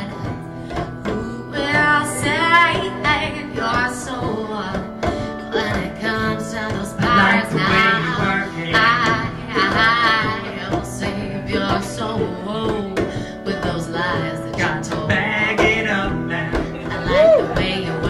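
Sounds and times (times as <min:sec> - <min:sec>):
acoustic guitars strumming: 0:00.0 - 0:18.0
hand drum beat: 0:00.0 - 0:18.0
person singing: 0:00.0 - 0:18.0.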